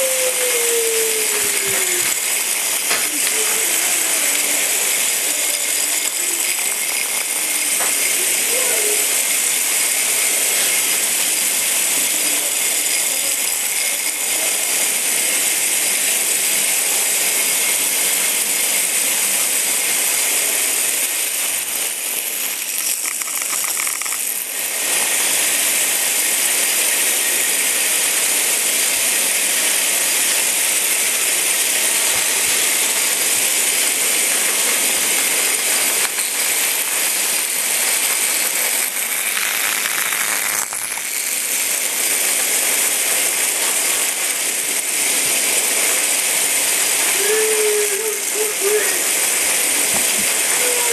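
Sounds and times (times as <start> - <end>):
vibrating toys buzzing and rattling: 0.0 - 50.9.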